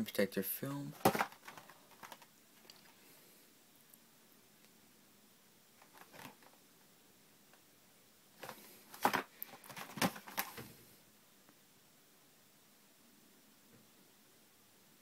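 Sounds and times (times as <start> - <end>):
cardboard package rustling: 0.9 - 2.9, 5.8 - 6.6, 8.4 - 10.7.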